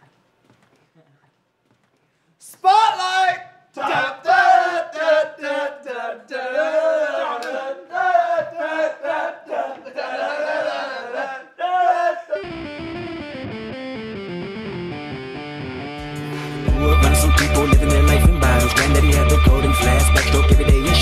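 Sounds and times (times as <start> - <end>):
group shouting and cheering: 2.6 - 12.6
music with plucked guitar: 12.4 - 19.9.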